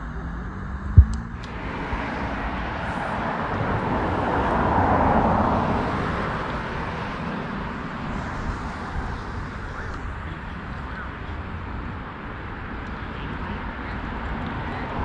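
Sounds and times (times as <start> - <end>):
vehicle passing by: 0.0 - 9.8.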